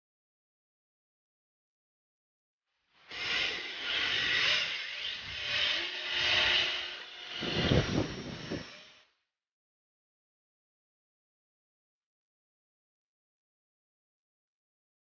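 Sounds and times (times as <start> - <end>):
rc car motors whirring: 3.0 - 9.2.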